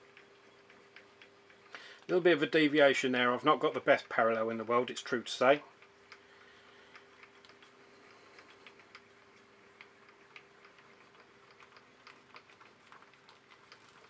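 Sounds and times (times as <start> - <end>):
mill table light clicks: 0.0 - 1.8, 5.7 - 6.3, 6.9 - 14.0
faint steady hum: 0.0 - 14.0.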